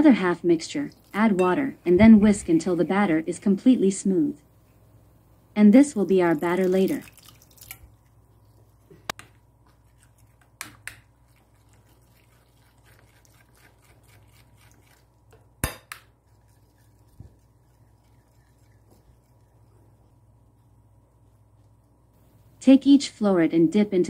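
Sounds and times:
whisk scraping ceramic bowl: 11.2s - 15.2s, 16.2s - 20.2s.

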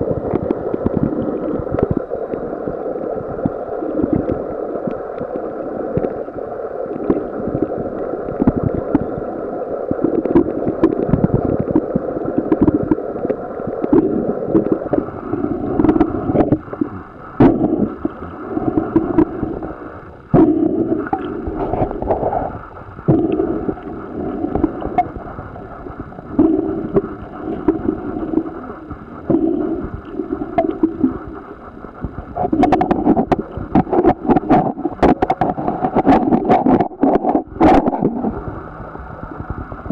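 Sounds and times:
underwater bubbles gurgling: 0.0s - 39.9s
underwater clicks: 0.2s - 2.8s, 10.0s - 19.6s, 20.3s - 25.2s, 26.3s - 38.4s.

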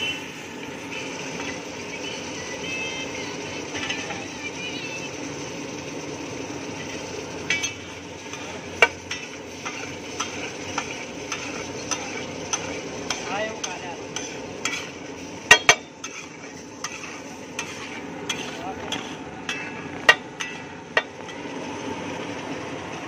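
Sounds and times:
gravy sizzling on a griddle: 0.0s - 23.0s
metal spatula scraping a griddle: 3.6s - 4.4s, 6.6s - 21.5s.

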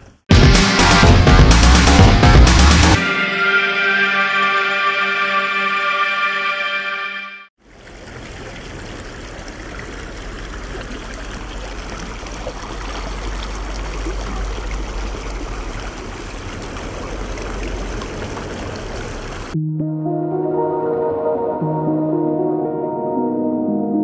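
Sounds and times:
stream water rushing: 7.6s - 19.6s.

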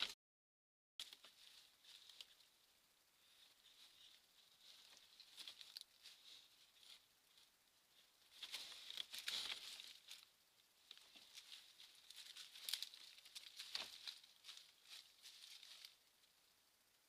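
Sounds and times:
badger scratching in leaves: 8.0s - 16.0s.

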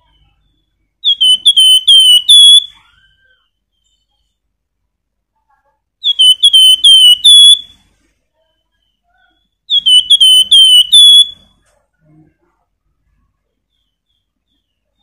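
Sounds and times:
songbird whistling: 0.0s - 4.2s, 6.0s - 7.8s, 8.7s - 11.6s.

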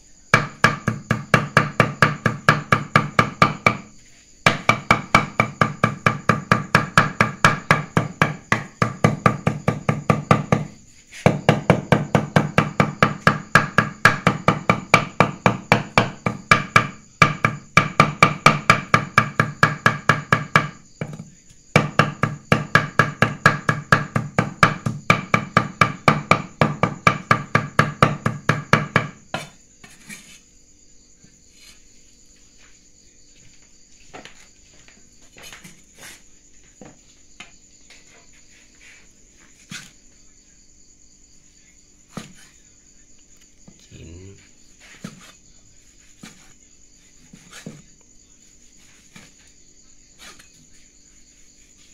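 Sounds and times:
cleaver chopping meat on wooden block: 0.4s - 29.6s
soft scrapes and knocks: 29.4s - 30.5s, 31.3s - 40.1s, 42.1s - 42.6s, 44.4s - 51.9s.

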